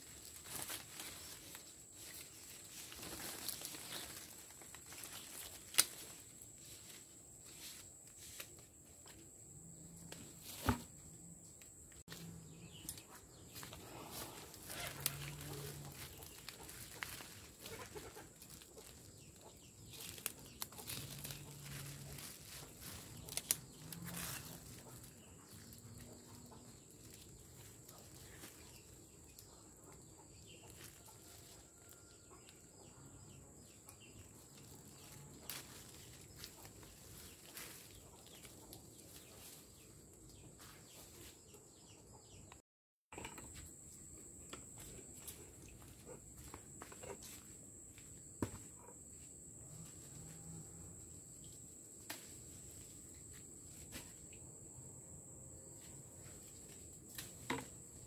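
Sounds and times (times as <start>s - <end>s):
plastic bag and leaves crackling: 0.0s - 7.7s, 13.6s - 26.1s, 34.4s - 38.5s
chickens clucking: 12.8s - 23.6s.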